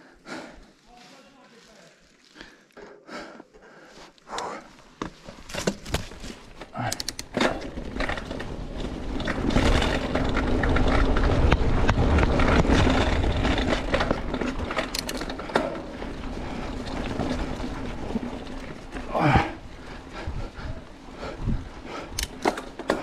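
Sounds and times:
bike tyre noise: 0.0 - 23.0
bike clicks and rattles: 4.2 - 23.0
wind rushing over microphone: 19.2 - 22.3.

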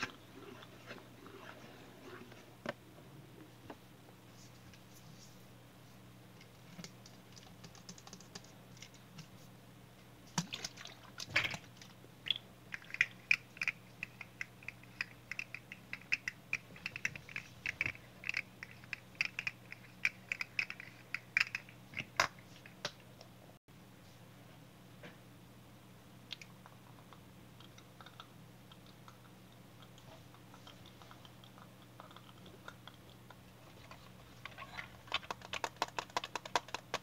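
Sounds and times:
faint steady hum: 0.0 - 37.0
plastic toy clicking: 35.1 - 37.0.

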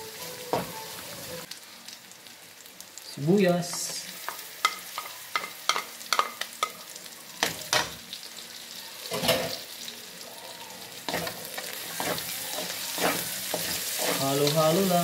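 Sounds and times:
food sizzling in oil: 0.0 - 15.0
wooden spatula scraping a wok: 11.1 - 14.5.

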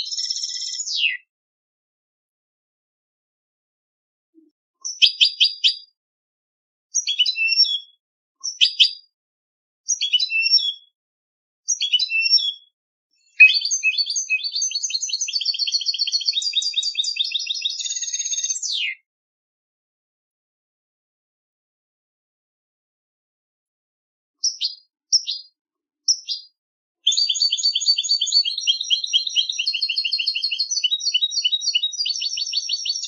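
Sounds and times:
finch twittering song: 0.0 - 1.3, 4.4 - 5.9, 7.0 - 9.1, 9.9 - 10.9, 11.7 - 19.0, 24.4 - 33.0.

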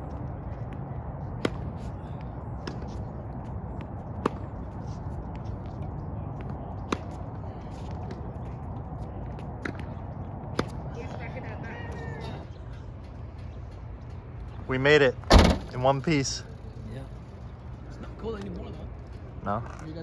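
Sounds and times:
tennis ball struck by racket: 1.4 - 1.8, 4.2 - 4.5.

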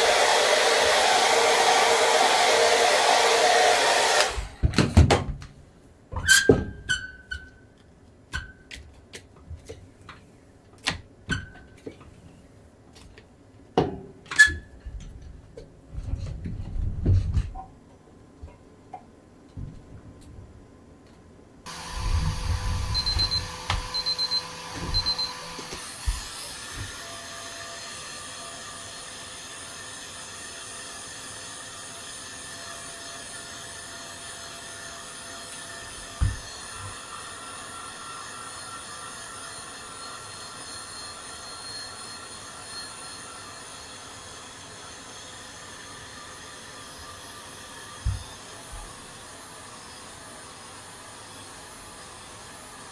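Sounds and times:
machine whirring hum: 21.7 - 30.2.

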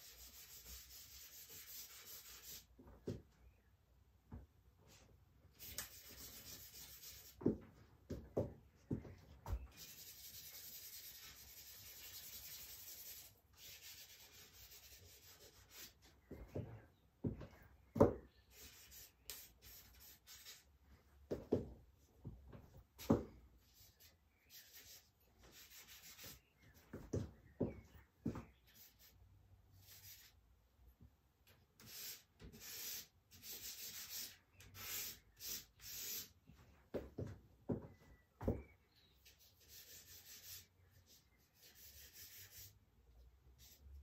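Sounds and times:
charcoal rubbing on paper: 0.0 - 2.7, 5.6 - 7.4, 9.7 - 16.1, 23.7 - 26.5, 29.8 - 30.4, 31.8 - 36.4, 39.2 - 42.8.

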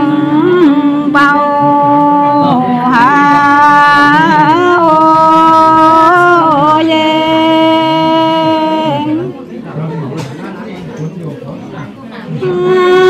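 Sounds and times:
women singing folk song: 0.0 - 9.3, 12.4 - 13.0.

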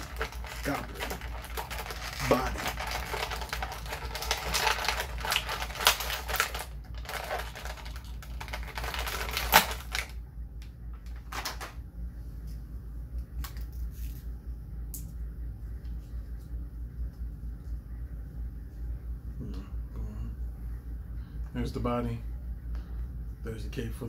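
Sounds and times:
plastic packaging crinkling: 0.0 - 10.2, 11.0 - 11.8.

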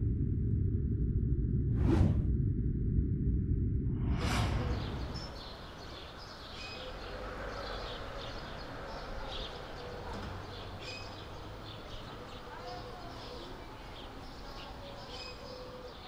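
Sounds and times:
low rumbling whoosh: 0.0 - 6.3
birds chirping: 4.4 - 16.0.

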